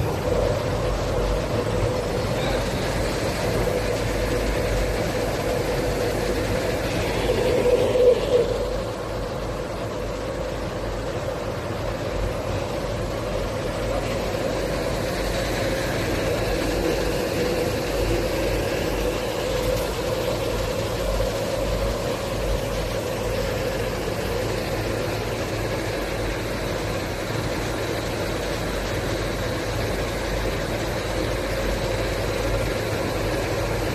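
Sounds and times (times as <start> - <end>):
machinery humming: 0.0 - 33.9.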